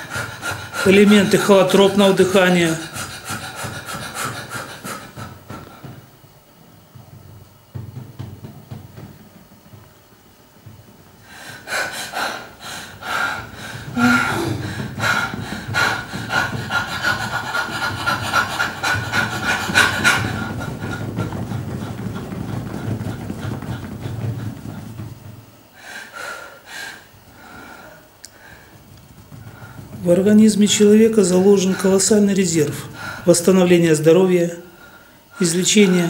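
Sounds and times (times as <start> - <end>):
woman panting hard: 0.0 - 6.2, 11.2 - 30.4, 31.2 - 33.3.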